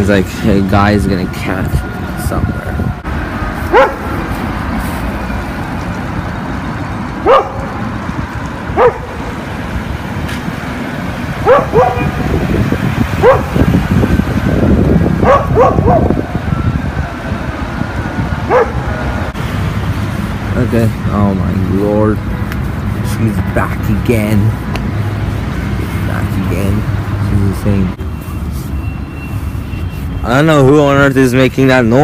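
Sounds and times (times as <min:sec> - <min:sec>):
road traffic rumble: 0:00.0 - 0:32.0
dog barking: 0:03.7 - 0:04.1, 0:07.2 - 0:07.8, 0:08.7 - 0:09.2, 0:11.4 - 0:12.2, 0:13.2 - 0:13.6, 0:15.2 - 0:16.2, 0:18.5 - 0:18.9.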